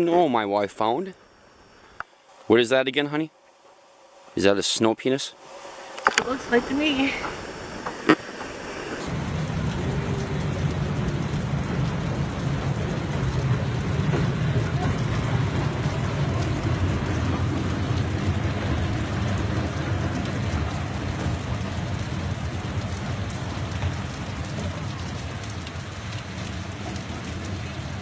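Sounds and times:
heavy rain on a street: 5.4 - 28.0
low rumble: 6.4 - 24.6.

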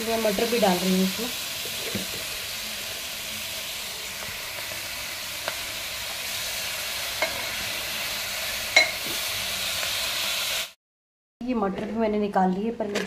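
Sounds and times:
vegetables sizzling in oil: 0.0 - 10.8
steel ladle knocking on pot: 8.8 - 9.0.

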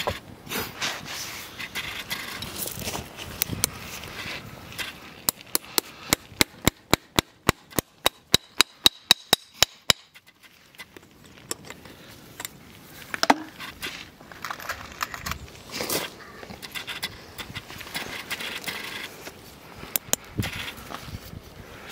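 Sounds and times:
scraping: 0.0 - 6.1, 10.1 - 21.4
hammer tapping metal nail: 5.3 - 10.1.

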